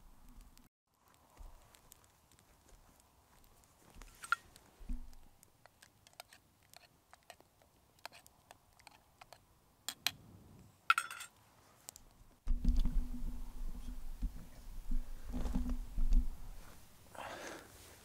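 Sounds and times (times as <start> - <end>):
campfire crackling and popping: 0.0 - 9.4.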